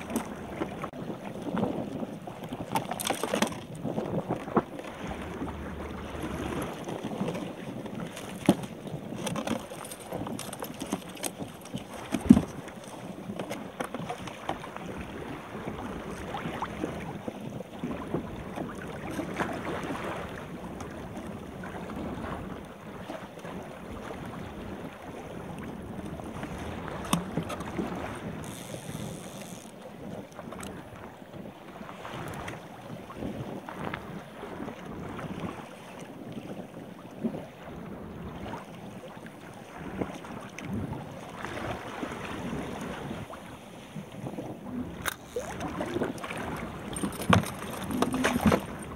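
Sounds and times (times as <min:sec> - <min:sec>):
wind buffeting microphone: 0:00.0 - 0:09.4, 0:14.8 - 0:38.7
water rushing along kayak hull: 0:00.0 - 0:48.9.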